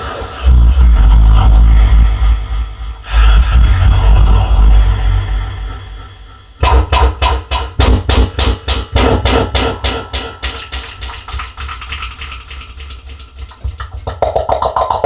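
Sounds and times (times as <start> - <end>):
mouth-made pulses with echo: 0.0 - 8.0
thin high tone: 8.3 - 14.0.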